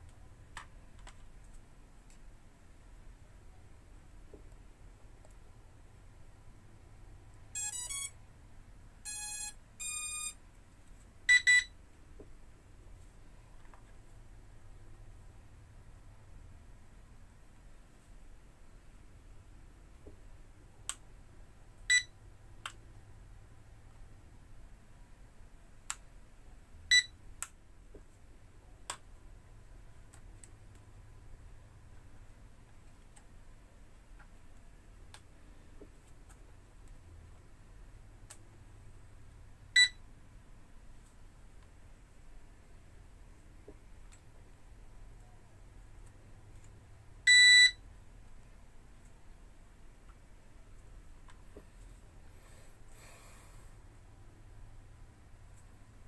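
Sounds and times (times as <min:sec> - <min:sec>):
short electronic beep: 0:07.6 - 0:08.2, 0:09.1 - 0:10.4.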